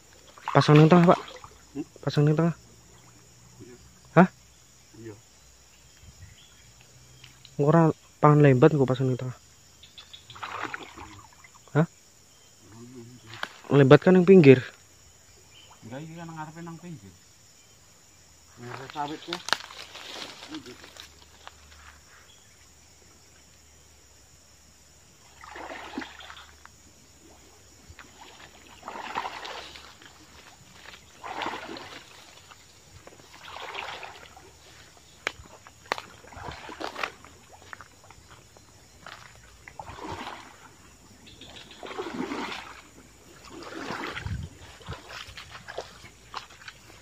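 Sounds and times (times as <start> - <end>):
wading through stream water: 0.0 - 3.2, 10.2 - 11.7, 25.2 - 47.0.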